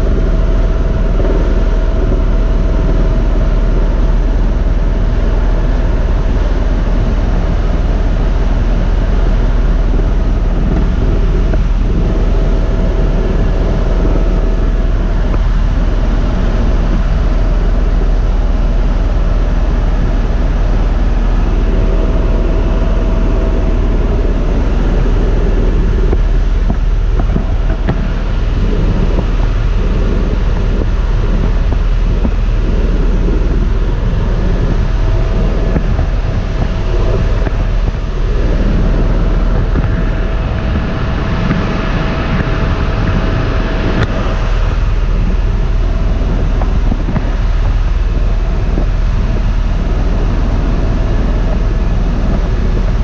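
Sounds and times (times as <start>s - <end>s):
helicopter rotor and turbine noise: 0.0s - 53.0s.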